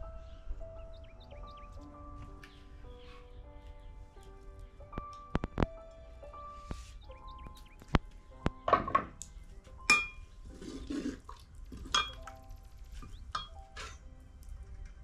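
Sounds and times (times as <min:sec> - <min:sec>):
metal clinks ringing: 0:09.9 - 0:10.2
metal ladle scraping a metal pot: 0:10.0 - 0:12.2, 0:13.4 - 0:14.0.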